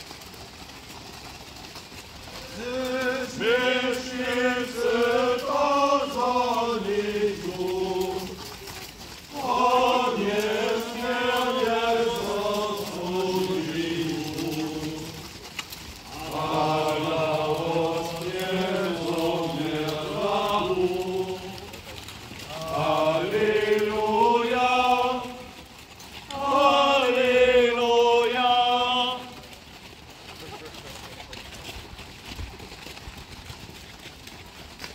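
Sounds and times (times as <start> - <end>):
hoof clops on gravel: 0.0 - 34.9
men singing a hymn in unison: 2.4 - 21.8, 22.5 - 29.6.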